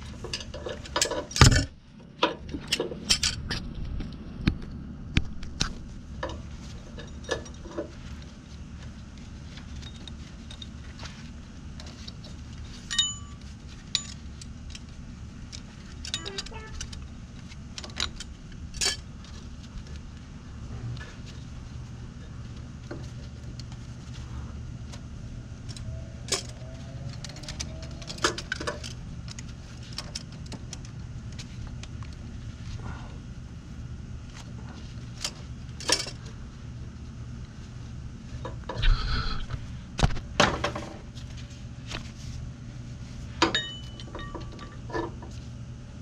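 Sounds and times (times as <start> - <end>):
steady low hum: 0.0 - 46.0
metallic clinks of cable hardware: 16.0 - 17.0.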